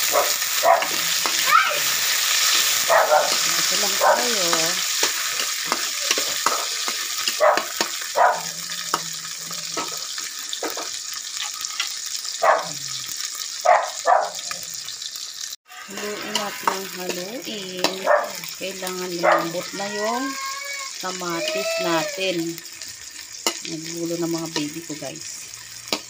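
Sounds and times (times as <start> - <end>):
food sizzling in oil: 0.0 - 26.0
spatula scraping and tapping pan: 3.3 - 8.1, 8.8 - 12.0.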